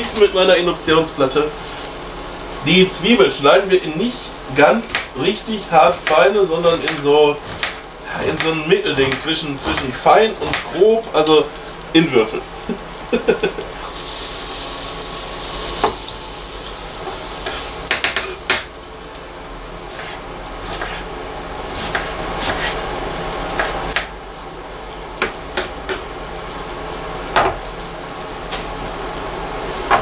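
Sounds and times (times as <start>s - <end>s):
butter sizzling in a frying pan: 0.0s - 30.0s
knife chopping on wooden board: 6.8s - 7.8s, 20.0s - 21.0s, 21.8s - 22.8s.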